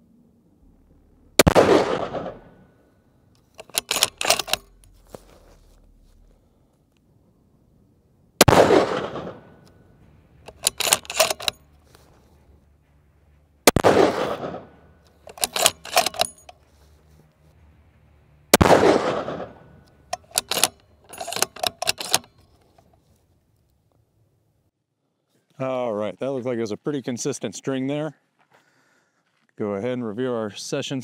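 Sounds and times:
rifle shots with echo: 0.7 - 2.9, 8.4 - 11.7, 13.6 - 16.3, 18.5 - 22.2
rifle bolt clicking: 3.4 - 5.4, 10.5 - 11.7, 14.2 - 16.6, 18.6 - 22.9.

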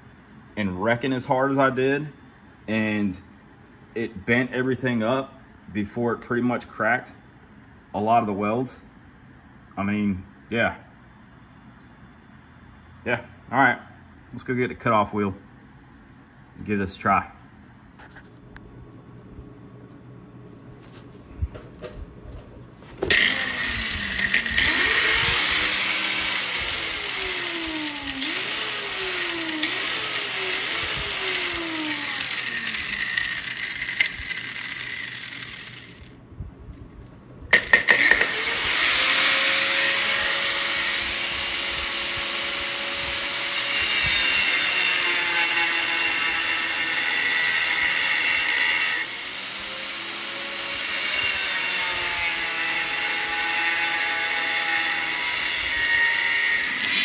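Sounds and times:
angle grinder cutting steel: 23.0 - 36.2, 37.5 - 57.0.

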